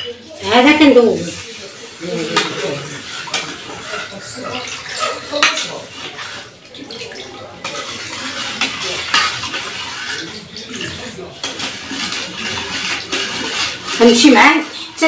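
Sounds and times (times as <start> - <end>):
liquid swishing in a pot: 0.0 - 15.0.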